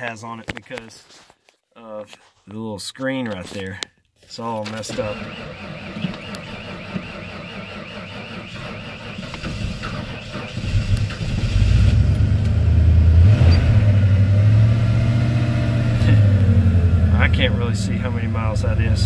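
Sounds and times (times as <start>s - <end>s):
engine starting and idling: 4.7s - 12.6s.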